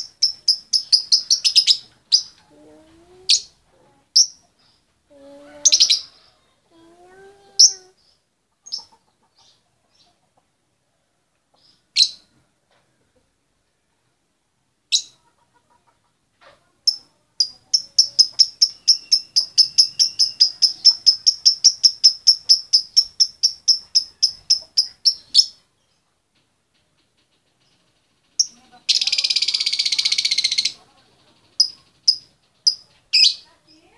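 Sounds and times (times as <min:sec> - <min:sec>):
lovebird chirping: 0:00.0 - 0:10.2, 0:11.6 - 0:12.3, 0:14.9 - 0:15.2, 0:16.9 - 0:26.1, 0:27.6 - 0:33.9.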